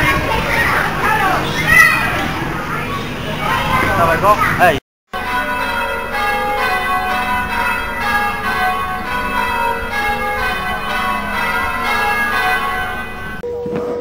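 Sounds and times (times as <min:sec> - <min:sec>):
church bells ringing a peal: 0:05.1 - 0:13.5.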